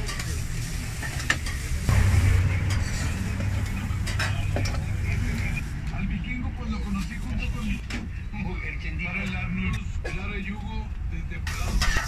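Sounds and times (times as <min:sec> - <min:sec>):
steady sizzle: 0:00.0 - 0:05.8
low rumble: 0:01.8 - 0:07.7.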